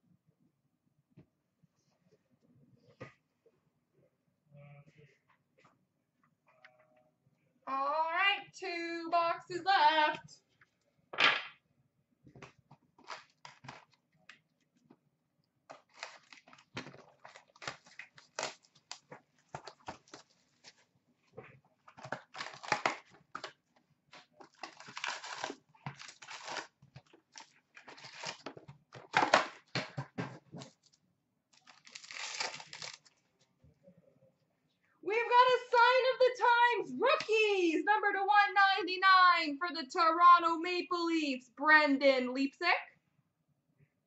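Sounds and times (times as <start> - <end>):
wrapper rustling and crinkling: 15.7 - 20.9, 21.9 - 23.6, 24.2 - 29.4, 31.6 - 33.2
cardboard box tearing: 24.5 - 26.7, 31.6 - 33.0.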